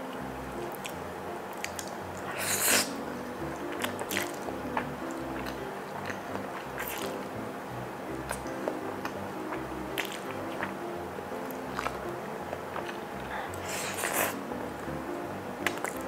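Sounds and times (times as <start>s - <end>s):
background music with steady beat: 0.0s - 16.0s
wet mouth clicks: 0.6s - 3.0s, 3.6s - 7.3s, 8.3s - 10.8s, 11.5s - 14.4s, 15.6s - 16.0s
person slurping noodles: 2.3s - 2.9s, 13.2s - 14.4s.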